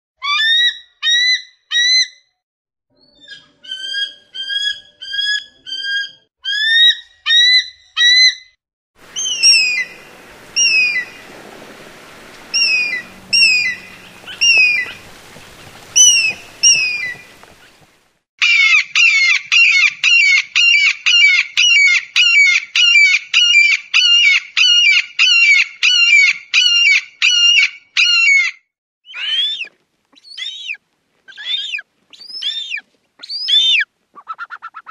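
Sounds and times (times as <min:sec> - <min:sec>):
background hiss: 0:09.0 - 0:18.2
eagle high cries: 0:09.1 - 0:11.3, 0:12.0 - 0:17.8.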